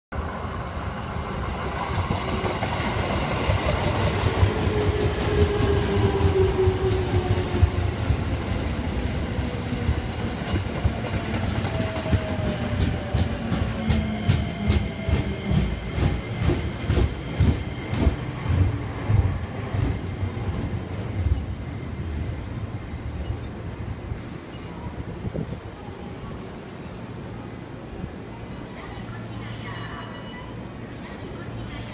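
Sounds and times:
low train rumble: 0.1 - 31.9
high brake squeal: 8.2 - 14.2.

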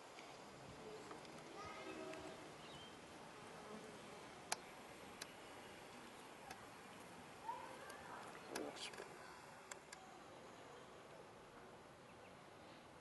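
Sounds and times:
bees buzzing faintly: 0.2 - 9.7.

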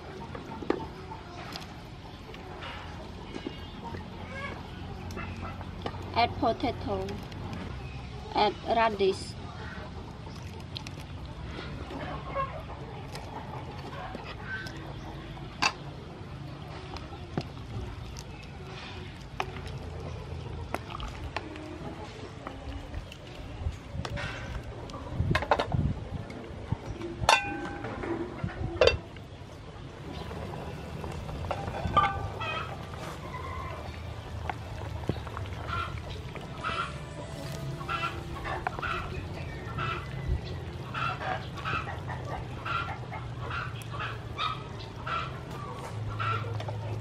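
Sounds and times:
fowl calling: 35.6 - 40.2.

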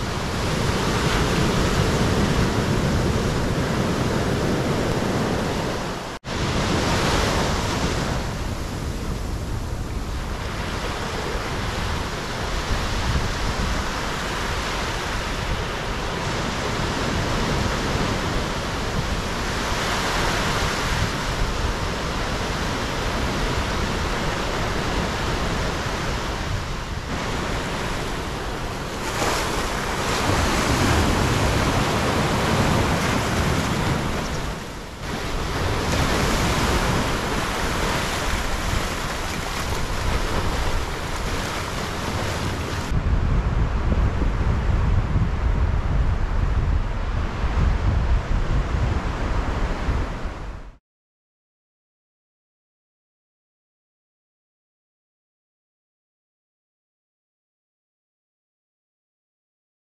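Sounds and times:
waves breaking on shore: 0.0 - 43.0.

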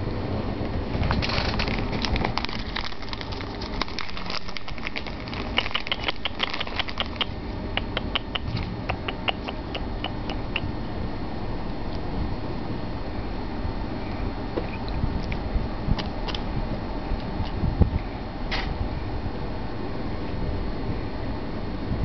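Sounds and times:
cat eating with wet smacks: 2.0 - 10.7.

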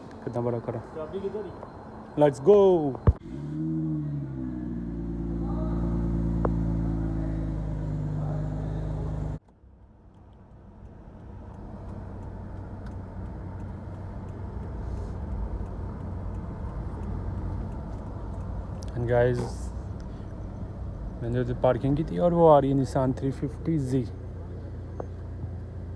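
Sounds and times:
road and engine rumble in car: 0.0 - 25.9
car engine idling at exhaust: 4.8 - 9.4, 10.2 - 25.9.

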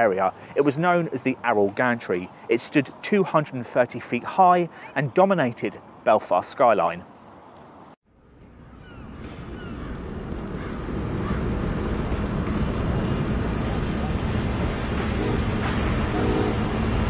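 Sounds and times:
deep steady rumbling: 8.1 - 17.0.

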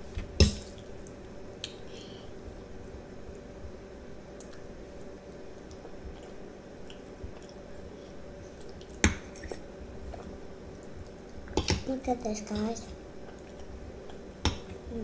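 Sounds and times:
steady low hum: 0.0 - 15.0
wet chewing of spaghetti: 4.4 - 11.7, 13.2 - 14.3.

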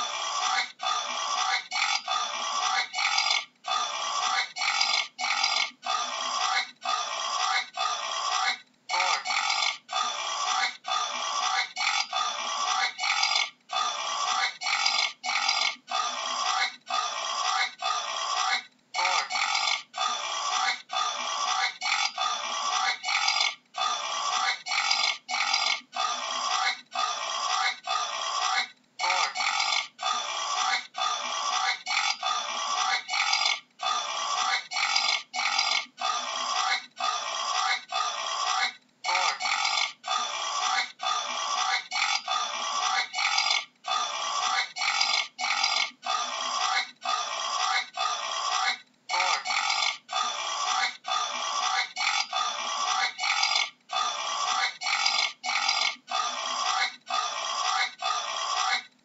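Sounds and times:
boar grunting: 0.0 - 58.9.

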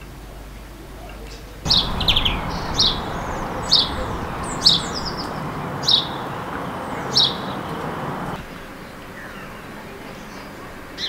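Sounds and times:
sparrow chirping: 1.7 - 8.4
steady background rumble: 1.7 - 8.4.

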